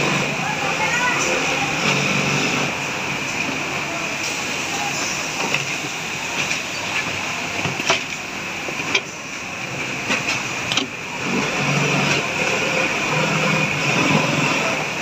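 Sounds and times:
sewing machine running: 0.0 - 2.9, 11.1 - 15.0
indistinct voices: 0.0 - 7.8.

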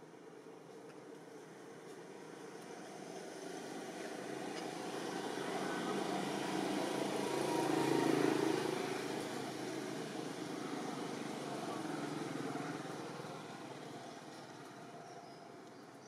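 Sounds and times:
distant vehicle passing: 4.2 - 14.4.

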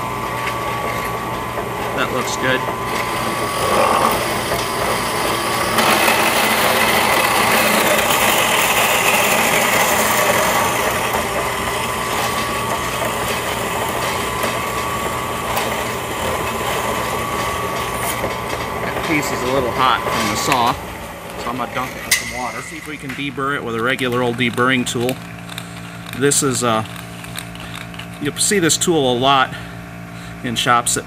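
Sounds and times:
bandsaw cutting metal tube: 2.0 - 25.1.

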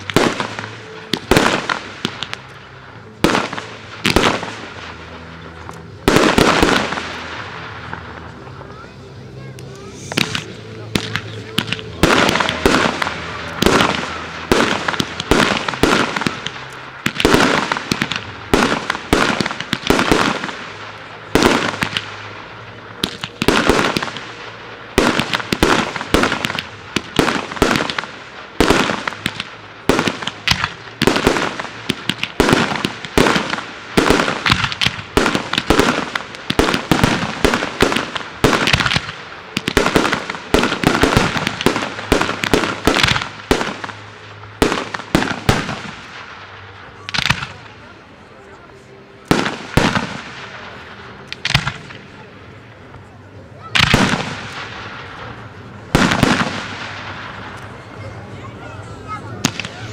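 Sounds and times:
fireworks shells bursting: 9.6 - 47.6.

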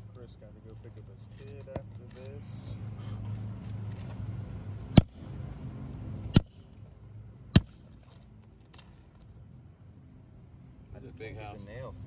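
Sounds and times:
hammer striking metal tool: 5.0 - 5.2, 6.4 - 6.6, 7.6 - 7.8.

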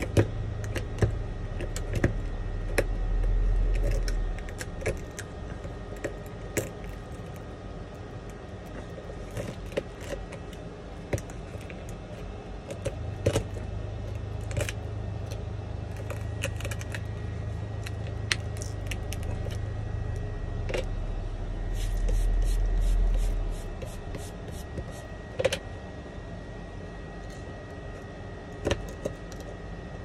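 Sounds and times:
low rumble: 0.0 - 5.8, 17.0 - 25.2
steady low hum: 0.0 - 30.0.

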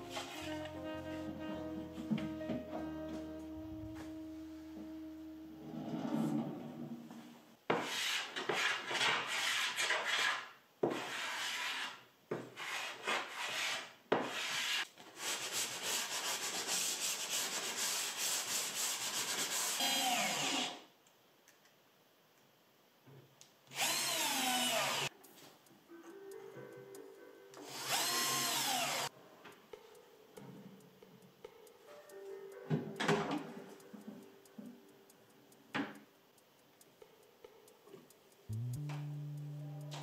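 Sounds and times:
sanding block rubbing wood: 7.8 - 12.0, 12.6 - 19.8
cordless drill driving a screw: 23.7 - 25.1, 27.6 - 29.1.

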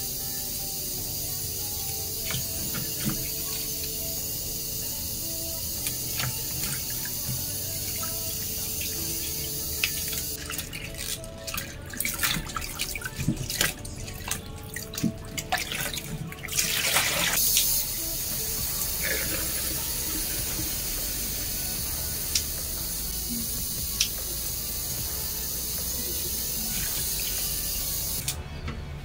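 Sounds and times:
tap running into basin: 1.8 - 4.1, 5.8 - 17.8
hands rinsing leafy greens: 5.8 - 17.8
small splashes and knocks: 10.4 - 17.4.

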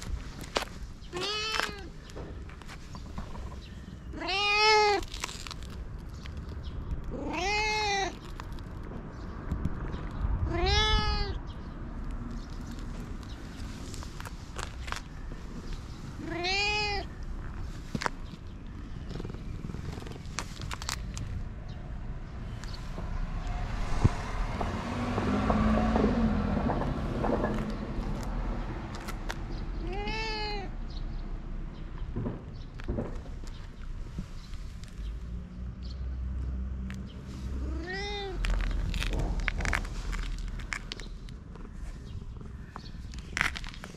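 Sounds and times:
cat meowing: 1.1 - 1.9, 4.1 - 5.1, 7.1 - 8.2, 10.4 - 11.4, 16.2 - 17.2, 29.8 - 30.7, 37.6 - 38.5.

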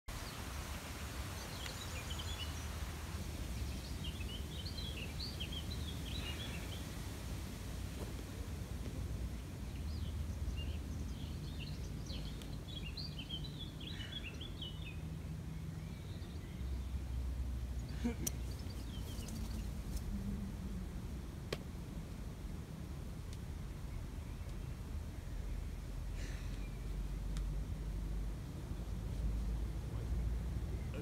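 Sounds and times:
small birds chirping: 0.1 - 8.1, 8.7 - 20.4, 23.5 - 27.8
low outdoor rumble: 0.1 - 31.0.

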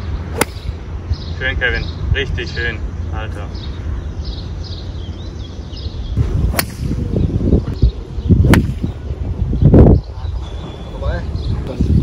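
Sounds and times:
golf club striking ball: 0.4 - 0.8, 6.5 - 7.1, 8.5 - 9.0
wind on microphone: 5.8 - 12.0.

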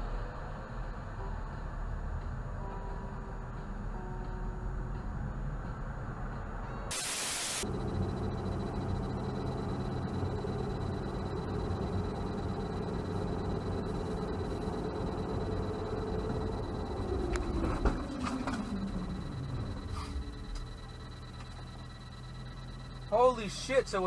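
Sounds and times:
low engine hum: 0.0 - 6.9, 7.6 - 24.0
road and wind noise in car: 0.0 - 6.9, 7.6 - 24.0
static hiss: 6.9 - 7.6.

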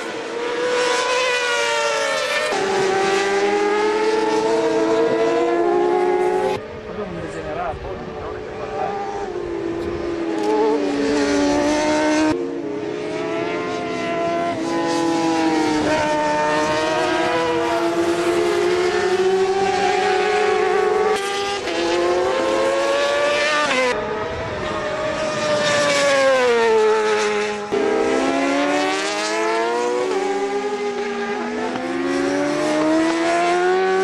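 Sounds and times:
racing motorcycle engines revving: 0.0 - 34.0.

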